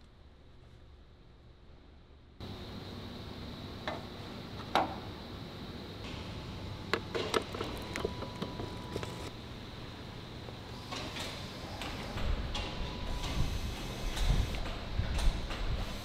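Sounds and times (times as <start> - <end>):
factory low hum: 0.0 - 16.0
sharp metallic clicks and knocks: 6.9 - 9.3.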